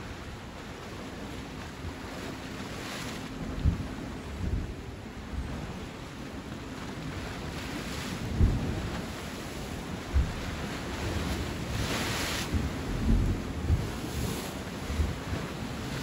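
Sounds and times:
sea surf washing on shore: 0.0 - 16.0
wind buffeting microphone: 0.0 - 16.0.

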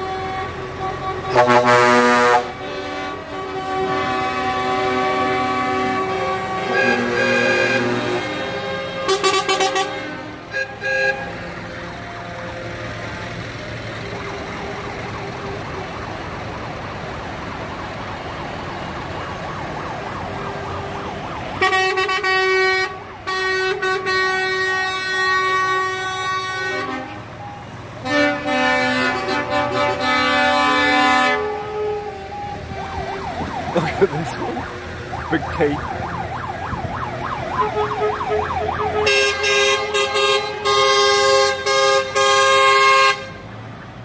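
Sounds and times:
lorry air horn blasts: 0.0 - 12.7, 21.6 - 27.3, 28.0 - 32.6, 37.6 - 43.4
diesel engine and tyre rumble: 0.0 - 44.0.

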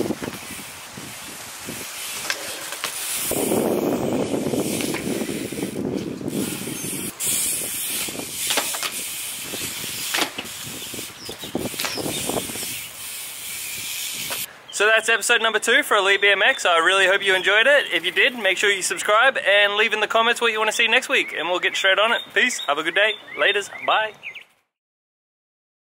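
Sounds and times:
bike tyres rolling on concrete: 0.0 - 14.5, 15.2 - 23.6
bike knocks and clicks: 7.8 - 12.8, 14.2 - 14.5.

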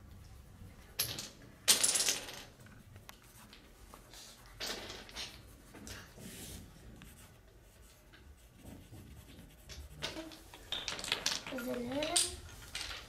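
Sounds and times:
pencil scribbling on paper: 5.5 - 10.4.

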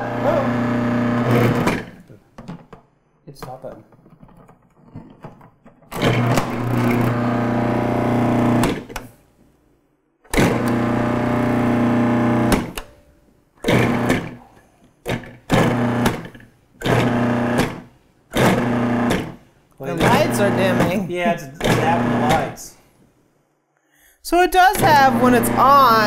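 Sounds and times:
food processor motor running: 0.0 - 2.0, 6.0 - 9.0, 10.3 - 12.8, 13.6 - 14.4, 15.1 - 22.6, 24.7 - 26.0.

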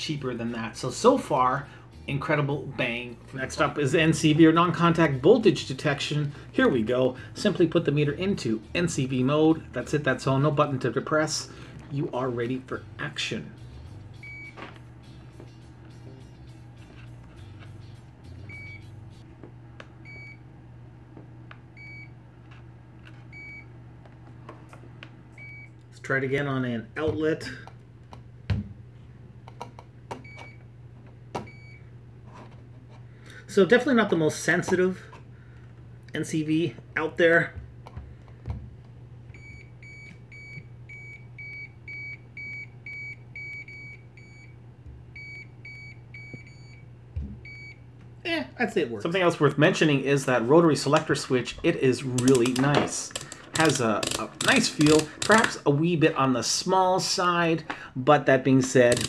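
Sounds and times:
steady low hum: 0.0 - 59.0
multimeter buzzer beeping: 14.2 - 14.7, 18.5 - 19.0.

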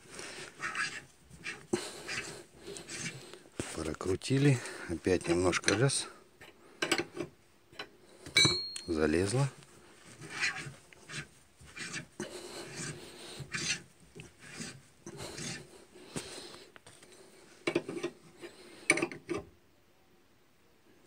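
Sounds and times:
metal scraping: 0.0 - 4.1, 10.1 - 15.7.

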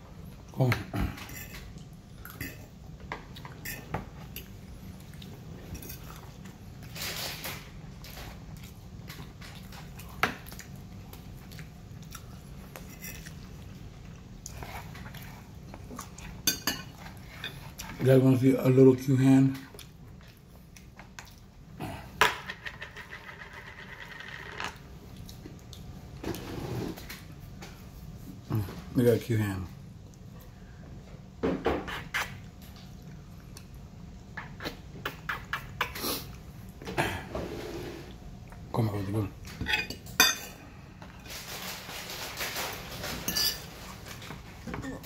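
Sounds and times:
fork scraping a plate: 12.8 - 13.4.

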